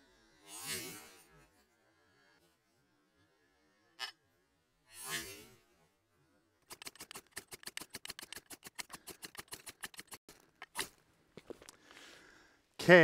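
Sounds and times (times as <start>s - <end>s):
knife scraping ferro rod: 6.7s - 10.9s.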